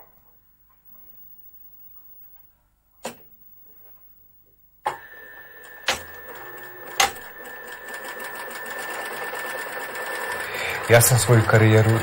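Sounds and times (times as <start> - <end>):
sewing machine running: 5.1 - 12.0.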